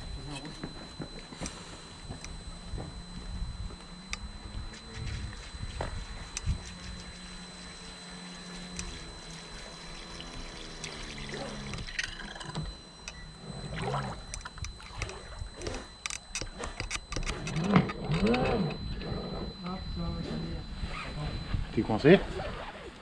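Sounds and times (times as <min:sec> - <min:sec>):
small boat motor humming: 0:00.0 - 0:23.0
water splashing and trickling: 0:09.2 - 0:12.6.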